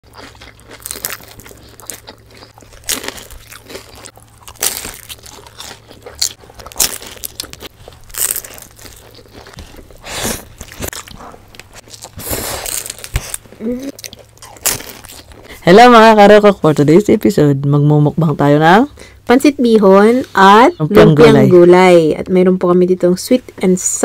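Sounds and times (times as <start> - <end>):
soft chewing: 0.0 - 15.6
crispy food crunching: 0.0 - 16.6.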